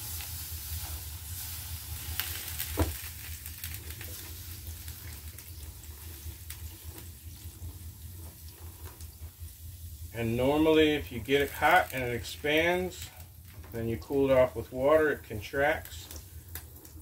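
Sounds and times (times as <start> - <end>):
steady low hum: 0.0 - 17.0
water sizzling on hot metal: 0.0 - 17.0
sharp pop: 2.7 - 3.0.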